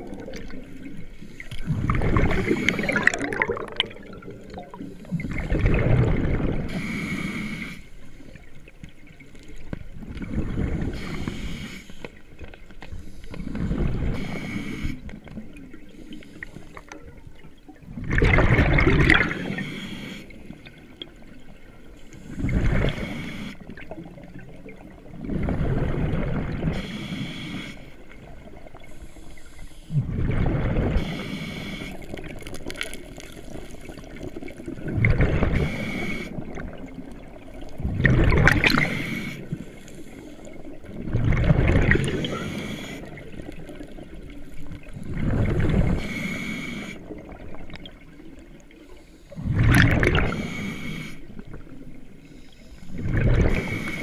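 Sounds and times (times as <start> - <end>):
gurgling rush of bubbles: 0.0 - 7.0, 9.8 - 11.4, 13.4 - 21.5, 22.2 - 26.9, 29.9 - 39.6, 40.4 - 46.4, 49.4 - 50.8, 52.9 - 54.0
underwater regulator breathing: 1.1 - 3.9, 6.6 - 8.2, 10.8 - 12.2, 12.8 - 16.9, 19.2 - 20.7, 22.0 - 23.7, 26.7 - 28.1, 30.9 - 32.5, 35.3 - 36.6, 38.4 - 40.8, 42.0 - 43.6, 45.7 - 47.2, 48.8 - 54.0.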